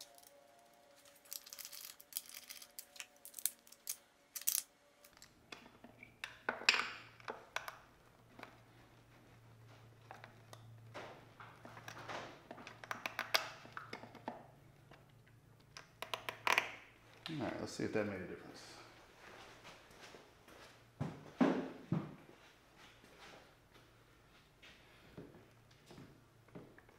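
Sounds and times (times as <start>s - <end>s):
low steady hum: 0.0s - 21.3s
metal tools clinking and scraping: 1.0s - 5.3s.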